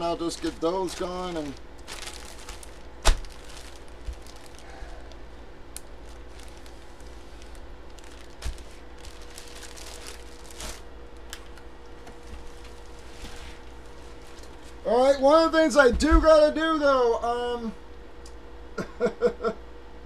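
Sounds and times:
plastic bag crinkling: 0.0s - 11.6s, 12.2s - 13.1s
faint steady hum: 0.0s - 20.0s.

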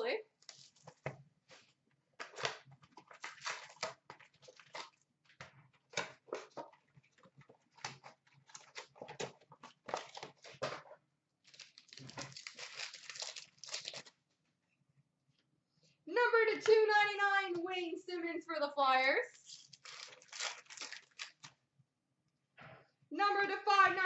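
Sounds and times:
card packs rustling and crinkling: 0.4s - 14.2s, 19.4s - 21.6s.

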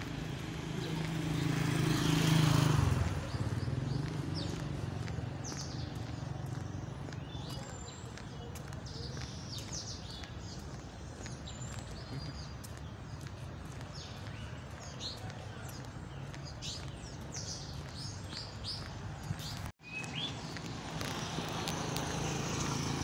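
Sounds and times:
motorcycle engine passing: 0.0s - 7.2s, 20.6s - 23.0s
birds chirping: 0.0s - 23.0s.

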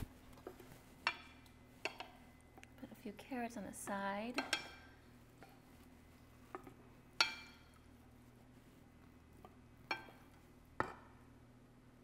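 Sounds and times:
wooden spoon knocking on skillet: 6.5s - 7.7s, 9.4s - 11.1s.

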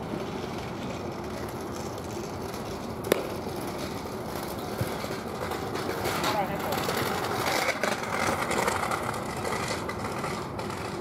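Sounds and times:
distant traffic hum: 0.0s - 11.0s
baseball striking with a crack: 3.0s - 3.8s.

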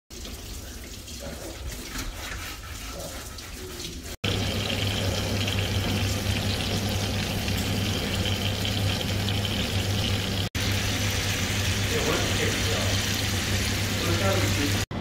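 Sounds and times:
chicken sizzling in hot oil: 4.0s - 14.9s.

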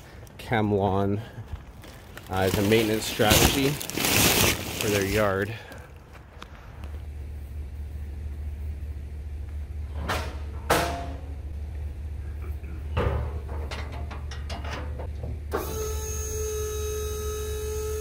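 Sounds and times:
vehicle engine idling: 4.6s - 10.5s.

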